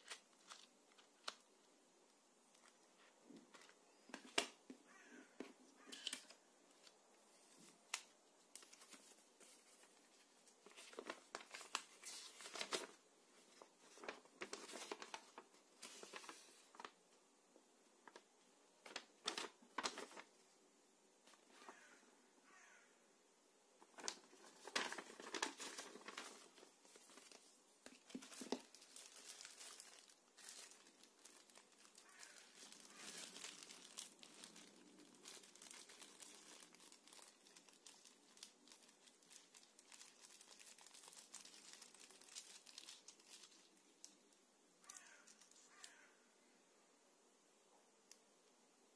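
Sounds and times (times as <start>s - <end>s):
paper leaflet rustling: 6.0s - 17.0s, 18.8s - 20.4s, 23.8s - 43.7s
plastic packaging crackling: 7.7s - 17.0s, 18.0s - 20.3s, 23.8s - 44.2s.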